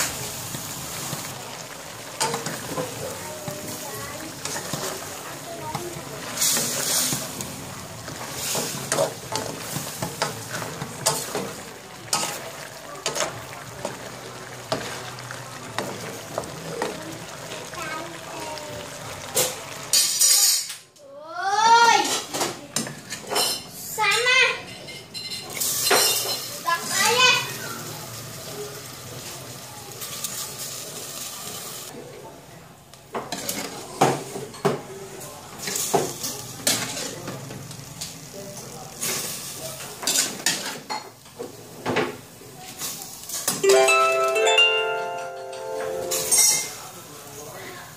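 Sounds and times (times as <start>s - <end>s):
food sizzling in a wok: 0.0s - 32.0s, 33.0s - 43.7s, 46.0s - 47.9s.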